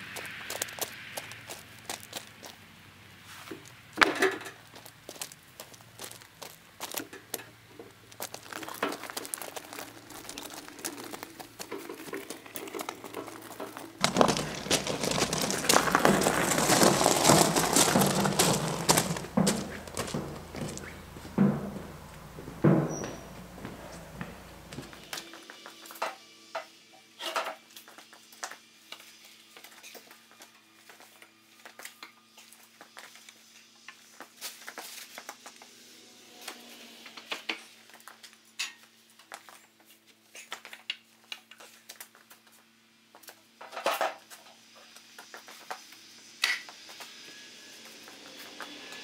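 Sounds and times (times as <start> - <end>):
wooden boards clacking: 14.0 - 23.0.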